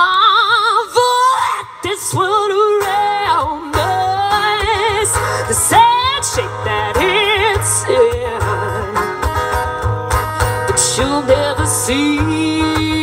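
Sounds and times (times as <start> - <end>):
person singing with vibrato: 0.0 - 9.6, 10.6 - 13.0
country band playing: 0.0 - 13.0.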